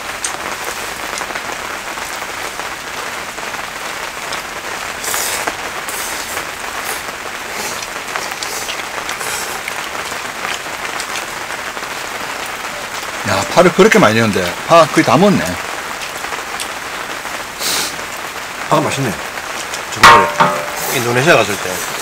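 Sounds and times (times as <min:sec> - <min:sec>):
steady rain falling: 0:00.0 - 0:22.0.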